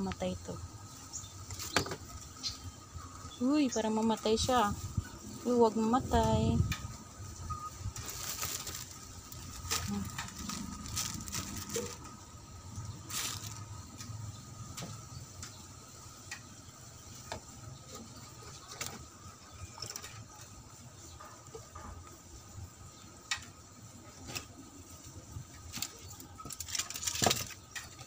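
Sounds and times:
wood fire crackling: 5.5 - 15.6
plastic bags rustling: 7.8 - 14.1, 25.7 - 28.0.

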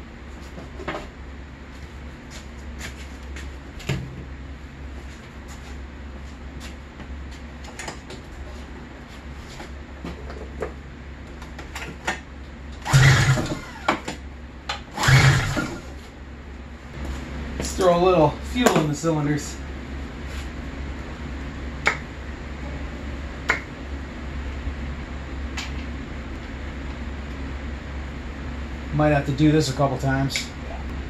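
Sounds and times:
low hum: 12.3 - 31.0
recoil starter pulls: 12.8 - 14.1, 14.9 - 15.9.

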